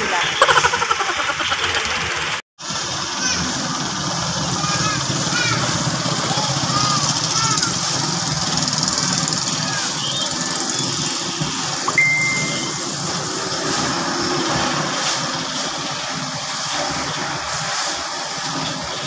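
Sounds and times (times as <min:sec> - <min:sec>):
engine running steadily: 0:01.4 - 0:19.0
short high tone: 0:11.9 - 0:13.1.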